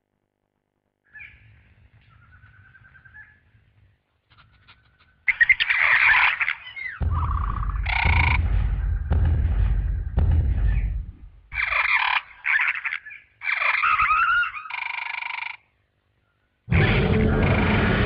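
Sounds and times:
squawking calls: 1.1s - 9.1s, 10.6s - 18.0s
raptor chirps and trills: 4.2s - 9.2s, 11.5s - 15.7s
deep heavy rumble: 7.0s - 11.6s, 16.7s - 18.0s.

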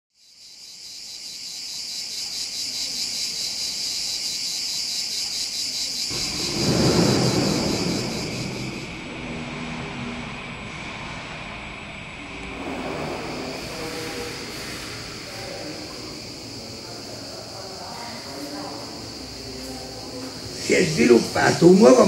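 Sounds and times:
insects chirring: 0.1s - 10.7s, 11.3s - 22.0s
low rumble of passing vehicle: 6.1s - 22.0s.

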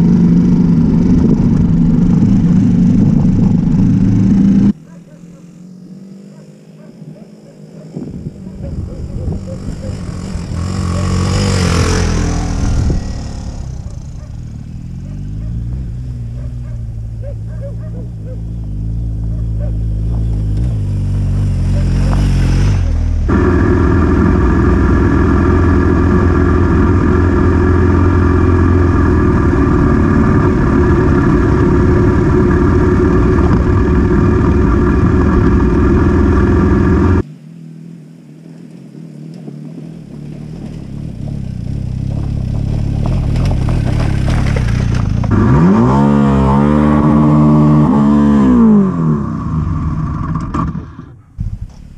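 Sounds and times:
motorcycle passing by: 0.0s - 51.2s
motorcycle approaching: 0.0s - 51.9s
motorcycle engine on board: 8.1s - 37.3s, 39.3s - 51.6s.

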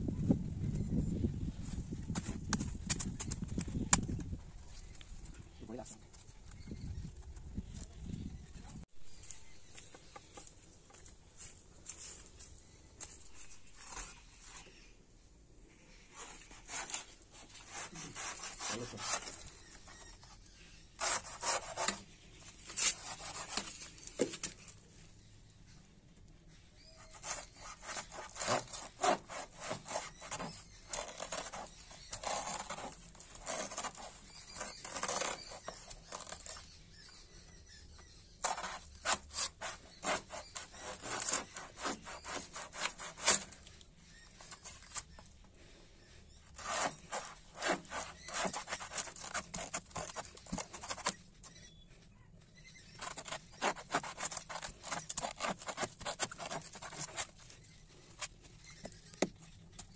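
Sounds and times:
knife sawing through plant stem: 16.1s - 24.3s, 26.9s - 36.8s, 38.4s - 45.2s, 46.4s - 51.3s, 52.9s - 58.4s.

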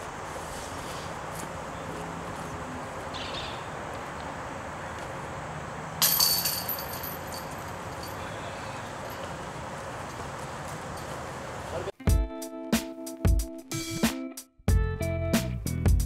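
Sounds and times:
disc striking metal chains: 6.0s - 9.4s.

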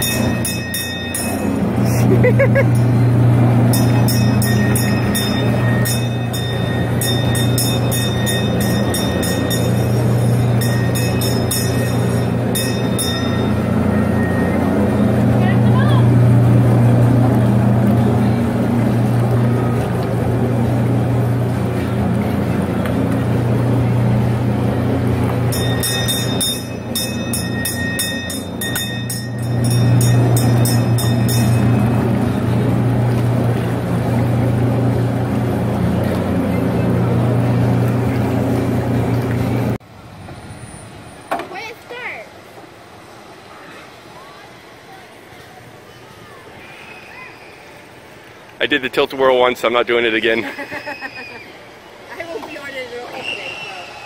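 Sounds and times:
small bell rung rapidly: 0.0s - 1.6s, 3.7s - 13.8s, 25.5s - 31.9s
faint high whine: 0.0s - 35.2s
machinery low hum: 0.0s - 41.3s.

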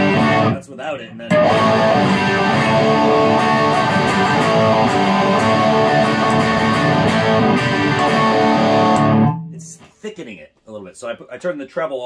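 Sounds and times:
overdriven electric guitar chords: 0.0s - 0.6s, 1.3s - 9.7s.

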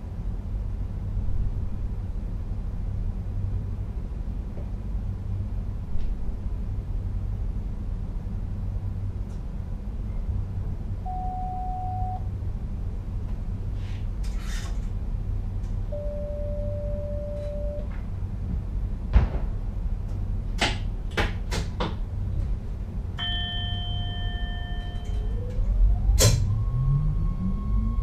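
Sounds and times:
train cab low rumble: 0.0s - 28.0s
short beep: 11.1s - 12.2s, 15.9s - 17.9s, 23.2s - 25.4s
multi-tone chime: 23.2s - 25.5s
electric motor whine rising: 25.2s - 28.0s.

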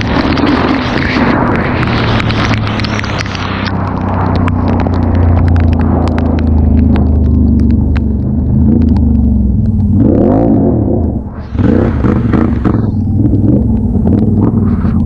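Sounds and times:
wet tyres hissing on road: 0.0s - 5.2s
atv engine revving: 8.7s - 11.0s, 11.6s - 14.7s.

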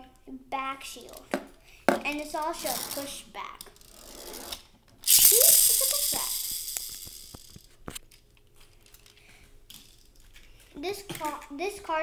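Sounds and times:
toy car spring motor whirring: 3.8s - 7.7s
toy car handling clicks: 5.1s - 7.7s.

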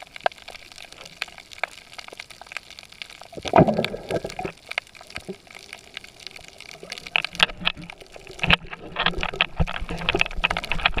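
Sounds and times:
underwater crackling and bubbly pops: 0.0s - 11.0s.

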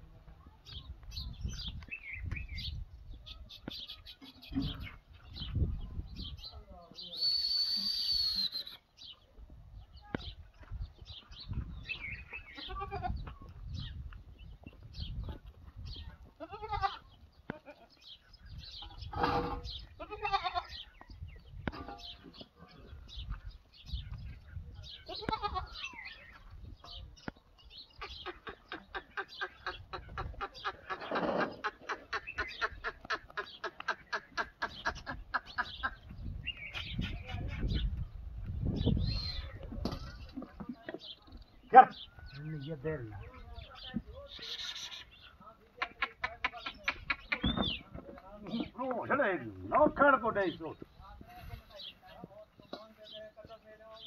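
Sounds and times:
small birds chirping: 0.0s - 54.0s
goat bleating: 12.5s - 13.2s, 16.4s - 18.0s, 19.2s - 20.8s, 25.0s - 25.9s, 44.4s - 45.2s.

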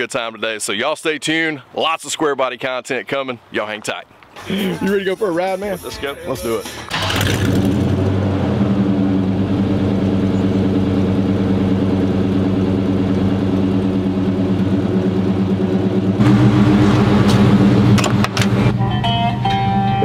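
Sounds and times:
pickup engine idling: 4.4s - 18.8s.

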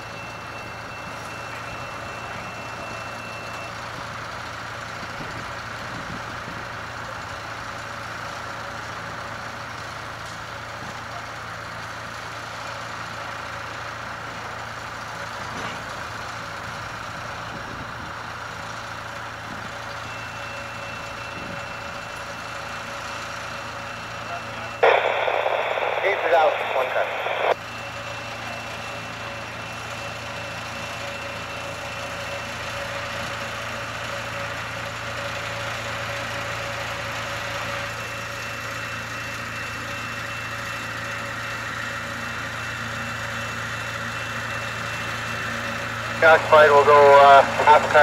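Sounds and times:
engine humming: 21.9s - 36.1s.

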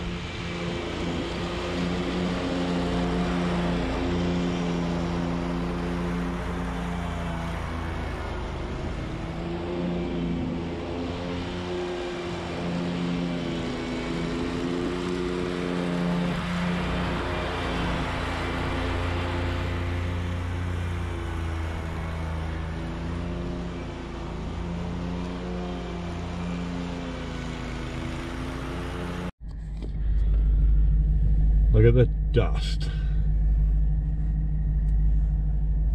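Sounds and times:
lawn mower engine running: 0.0s - 31.8s
low rumble: 29.4s - 35.9s.

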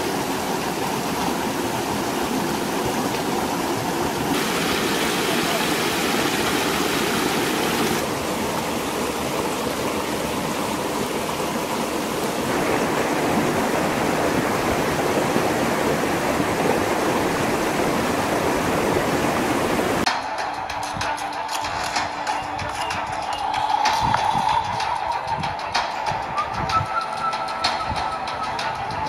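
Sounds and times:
stream rushing over stones: 0.0s - 20.1s.

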